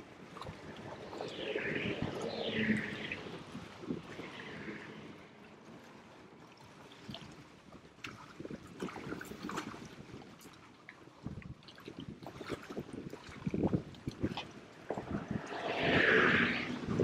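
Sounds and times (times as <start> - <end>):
small waves lapping against hull: 3.5 - 15.0.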